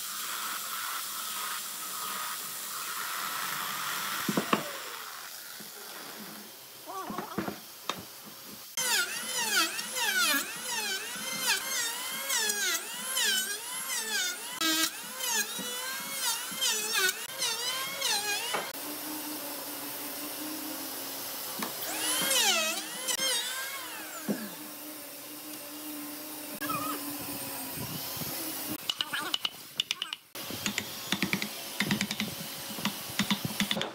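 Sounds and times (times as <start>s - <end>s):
power tool cutting wood: 0.0s - 8.0s, 8.6s - 33.9s.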